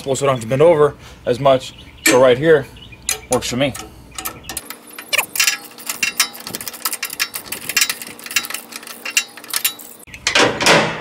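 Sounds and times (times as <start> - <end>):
ratchet wrench clicking: 3.8 - 10.1.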